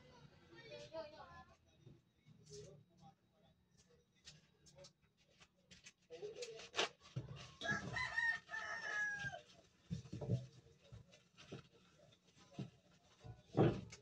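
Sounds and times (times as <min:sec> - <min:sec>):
rooster crowing: 0:07.6 - 0:09.4.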